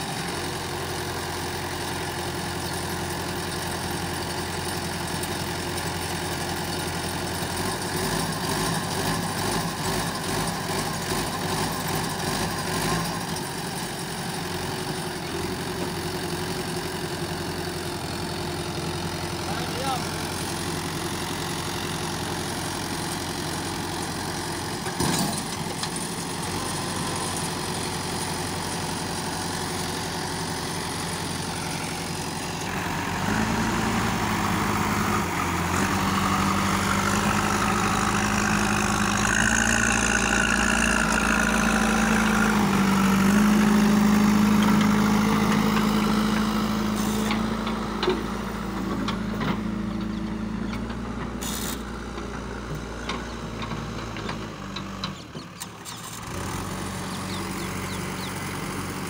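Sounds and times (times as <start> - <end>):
diesel engines running: 0.0 - 59.0
engine revving under heavy load: 24.5 - 59.0.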